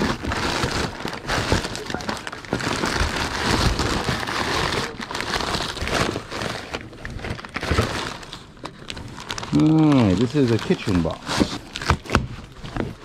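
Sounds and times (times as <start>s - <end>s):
cardboard and paper rustling: 0.0s - 13.0s.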